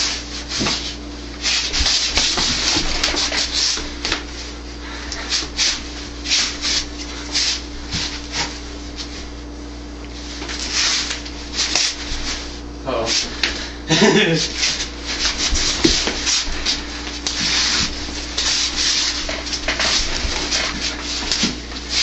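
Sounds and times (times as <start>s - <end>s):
sleeves brushing together: 10.2s - 13.6s, 14.4s - 22.0s.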